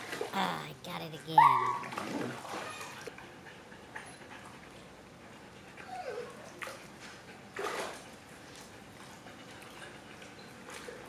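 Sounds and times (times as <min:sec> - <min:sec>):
dog whining: 0:01.4 - 0:03.1, 0:05.8 - 0:06.6.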